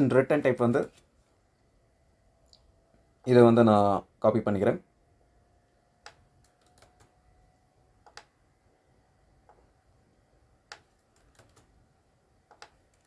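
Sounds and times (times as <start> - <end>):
keyboard and mouse clicks: 6.0 - 7.2, 8.0 - 8.3, 10.7 - 11.8, 12.5 - 13.0.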